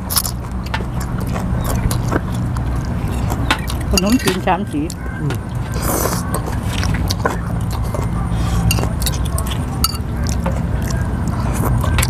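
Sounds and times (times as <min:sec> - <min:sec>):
spoons clinking against glass bowls: 0:03.5 - 0:04.9, 0:08.6 - 0:10.4.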